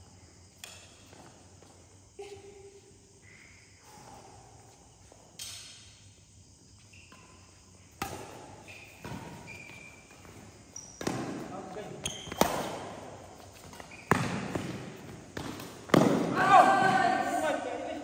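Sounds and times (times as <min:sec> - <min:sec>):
racket hitting shuttlecock: 0:00.6 - 0:01.2, 0:07.9 - 0:09.9, 0:11.0 - 0:17.2
court shoes squeaking: 0:06.7 - 0:17.0.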